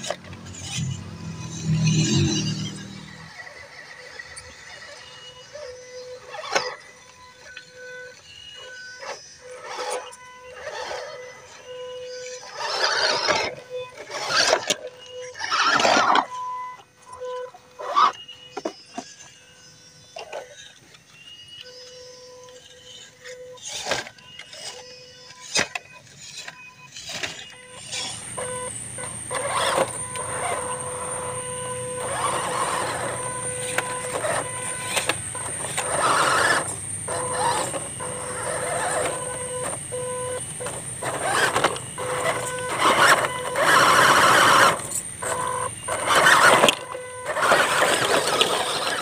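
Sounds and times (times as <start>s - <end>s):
electric motors whining: 0.0s - 49.0s
wheels knocking over rocks: 27.8s - 49.0s
tyres churning through mud and water: 40.5s - 49.0s.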